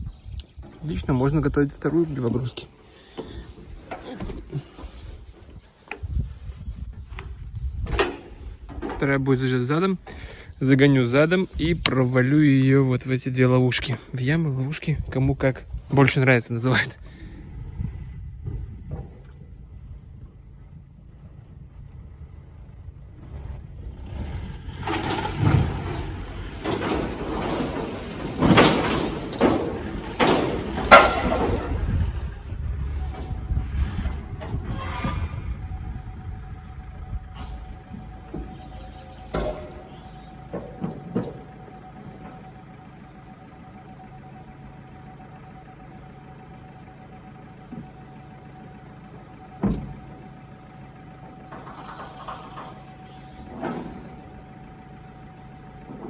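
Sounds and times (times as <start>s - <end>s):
engine running with whine: 0.0s - 56.0s
low rumble: 0.0s - 56.0s
knocks and clatters: 7.2s - 9.2s, 24.7s - 31.9s, 37.4s - 42.4s
heavy thump: 49.6s - 50.0s.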